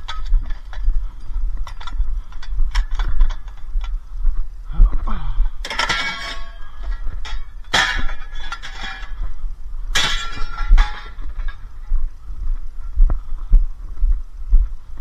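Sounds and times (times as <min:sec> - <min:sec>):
steady low rumble: 0:00.0 - 0:15.0
scrap metal clanging: 0:05.6 - 0:09.3, 0:09.9 - 0:11.7.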